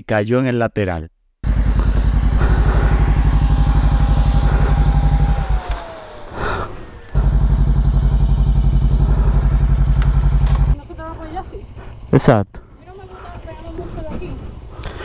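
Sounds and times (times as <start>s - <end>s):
motorcycle engine idling: 1.4s - 12.1s, 12.7s - 15.0s.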